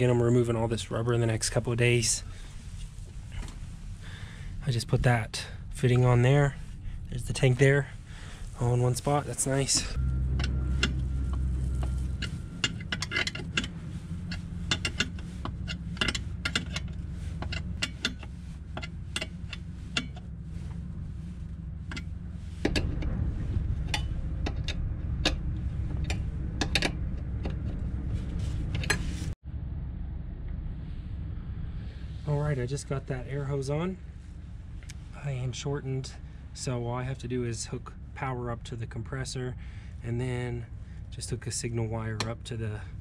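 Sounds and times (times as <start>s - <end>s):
low steady rumble: 0.0s - 43.0s.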